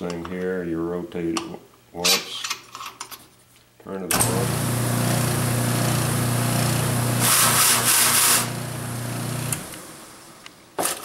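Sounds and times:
sander strips whirring and slapping: 0:04.2 - 0:09.9
motor hum: 0:04.2 - 0:10.5.

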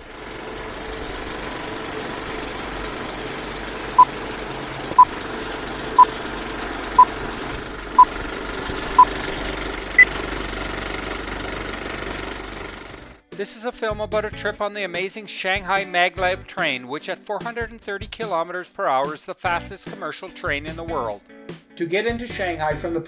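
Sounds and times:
film projector rattle: 0:00.0 - 0:13.2.

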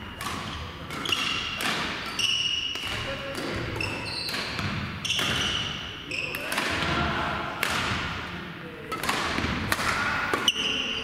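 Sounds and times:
shoes squeaking on court floor: 0:00.0 - 0:06.6, 0:10.4 - 0:11.0
racket hitting shuttlecock: 0:00.0 - 0:08.3, 0:08.9 - 0:10.8.

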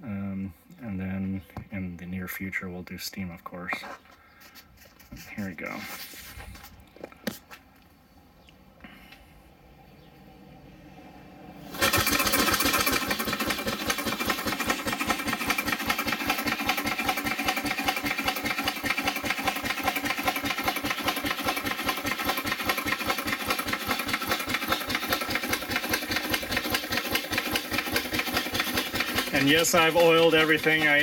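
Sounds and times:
steam engine exhaust puffs: 0:11.6 - 0:31.0.

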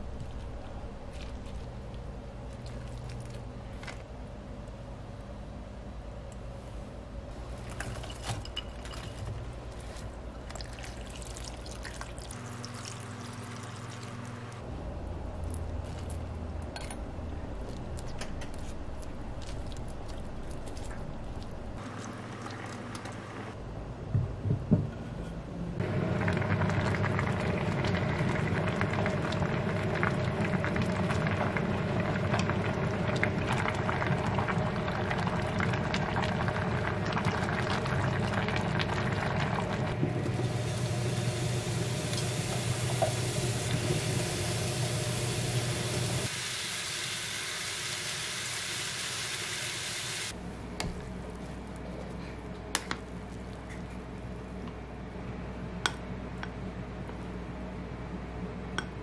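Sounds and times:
stew bubbling and popping: 0:10.4 - 0:14.6, 0:25.8 - 0:40.5.

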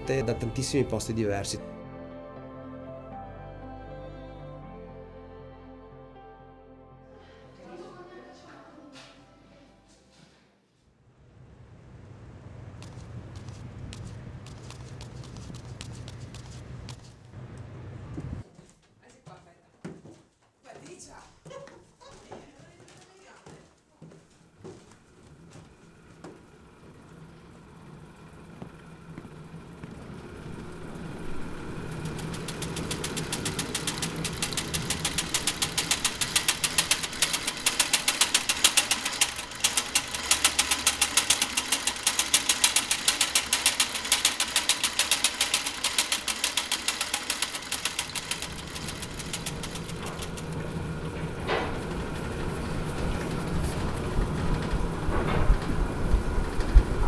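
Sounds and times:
printing machinery clattering: 0:25.4 - 0:57.0
sharp machine click: 0:32.1 - 0:50.6.

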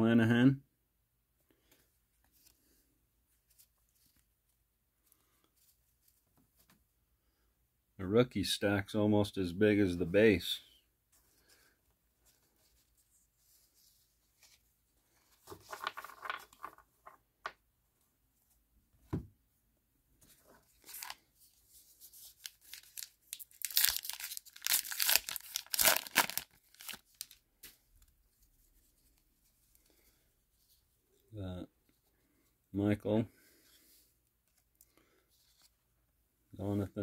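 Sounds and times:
wrapper tearing and crinkling: 0:20.8 - 0:21.2, 0:22.3 - 0:27.4.

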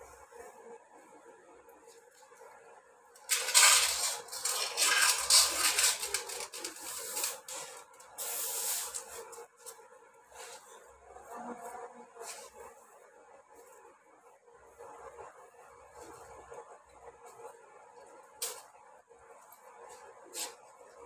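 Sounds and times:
peas rattling into a bowl: 0:03.3 - 0:07.4
broom sweeping concrete floor: 0:03.3 - 0:15.1, 0:19.8 - 0:21.0.

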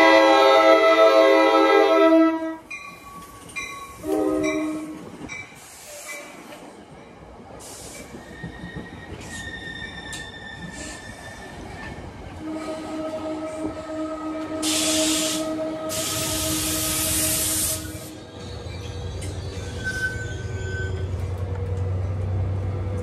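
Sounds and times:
train horn blasts: 0:00.0 - 0:02.7, 0:04.0 - 0:05.2, 0:12.4 - 0:18.1
train wheels rumbling: 0:02.5 - 0:23.0
high wheel squeal: 0:07.9 - 0:11.8, 0:17.3 - 0:21.3.

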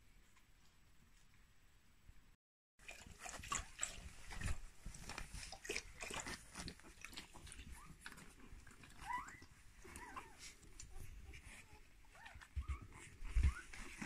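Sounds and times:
puppies rustling on a blanket: 0:03.2 - 0:14.0
puppy squeaking: 0:08.8 - 0:14.0.

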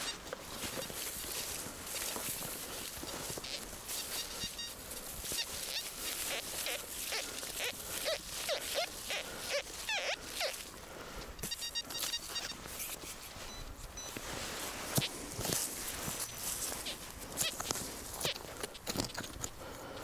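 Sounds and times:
crunching in snow: 0:00.0 - 0:20.0
short squeaks: 0:11.4 - 0:14.2.

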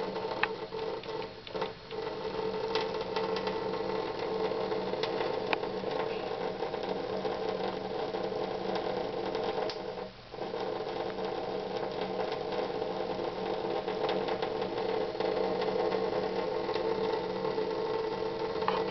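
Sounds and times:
faint irregular ticks: 0:00.0 - 0:18.9
small motor humming: 0:14.5 - 0:18.9.

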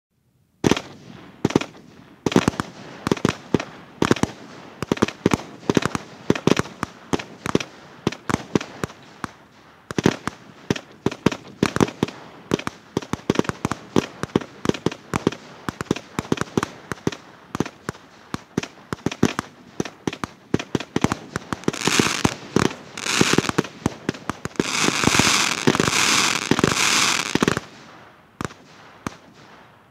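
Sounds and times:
dense firework crackling: 0:00.6 - 0:29.9
firework battery firing: 0:20.1 - 0:27.8.

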